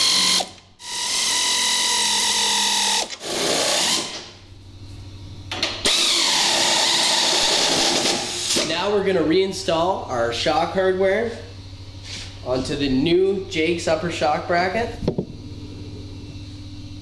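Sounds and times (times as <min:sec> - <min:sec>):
air ratchet whirring: 0:00.0 - 0:04.3, 0:05.8 - 0:08.6.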